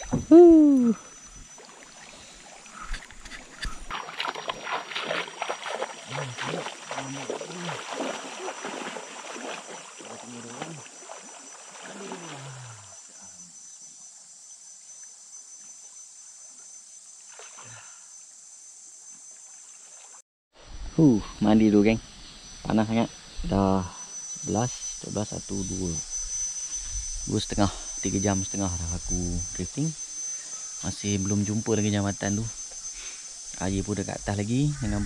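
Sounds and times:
low falling hoots: 0:00.0 - 0:01.2
water splashing: 0:00.0 - 0:13.0
high insect drone: 0:00.0 - 0:35.0.

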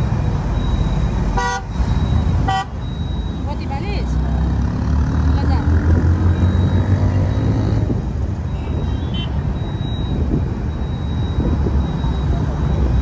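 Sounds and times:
motorcycle running: 0:00.0 - 0:10.5
wind rumble on microphone: 0:07.7 - 0:13.0.

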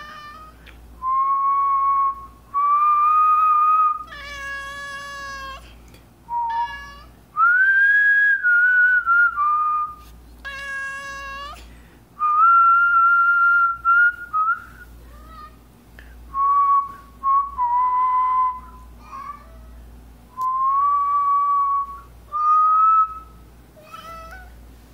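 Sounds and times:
cat meowing: 0:00.0 - 0:00.6, 0:04.0 - 0:05.6, 0:06.4 - 0:07.1, 0:10.4 - 0:11.6, 0:19.0 - 0:19.7, 0:23.8 - 0:24.6
person whistling long notes: 0:07.4 - 0:10.0, 0:16.4 - 0:18.6.

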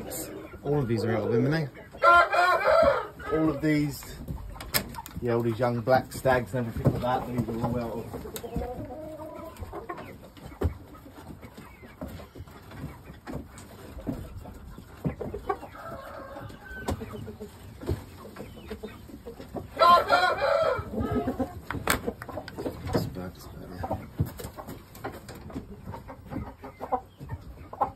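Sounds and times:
chickens clucking: 0:00.0 - 0:27.9
rooster crowing: 0:19.8 - 0:21.2.

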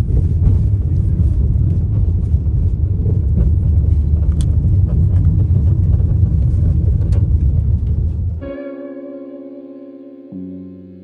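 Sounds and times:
car cabin road noise: 0:00.0 - 0:08.4
music: 0:08.4 - 0:11.0.

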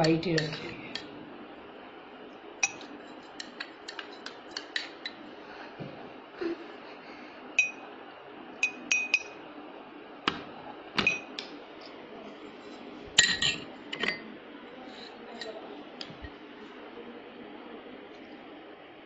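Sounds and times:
drinking glass clinking: 0:07.6 - 0:07.8, 0:08.6 - 0:09.4, 0:13.2 - 0:14.2.

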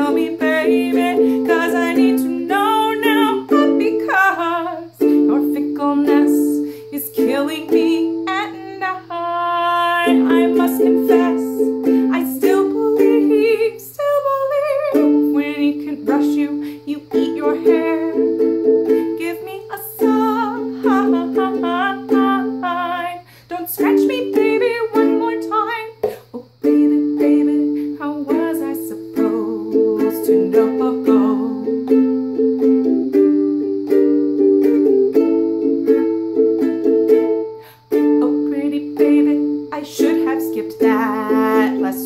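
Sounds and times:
woman singing: 0:00.0 - 0:32.0, 0:37.8 - 0:42.0
ukulele strumming chords: 0:00.0 - 0:42.0.

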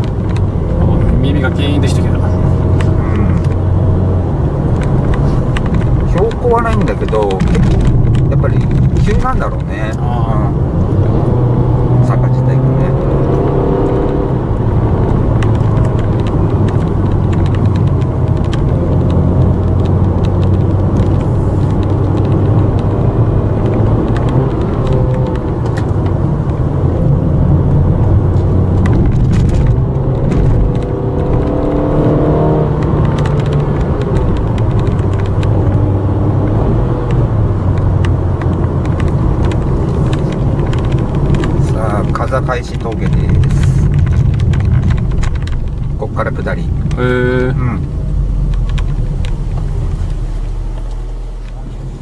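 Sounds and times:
car engine and road noise: 0:00.0 - 0:52.0.

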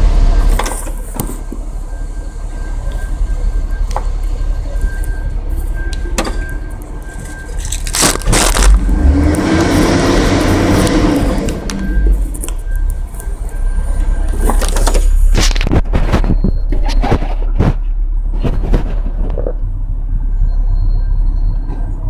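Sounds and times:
dense loud noise: 0:00.0 - 0:22.0
low rumble of car: 0:00.0 - 0:22.0.

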